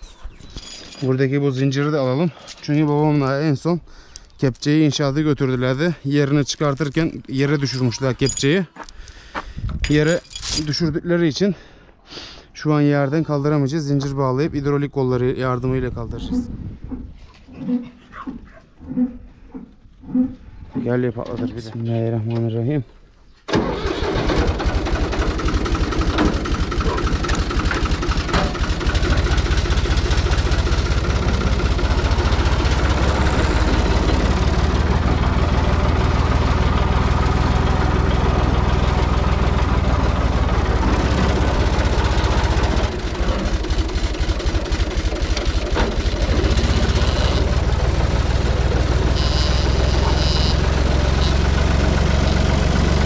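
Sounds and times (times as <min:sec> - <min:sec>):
tractor engine starting and running: 0:23.5 - 0:53.0.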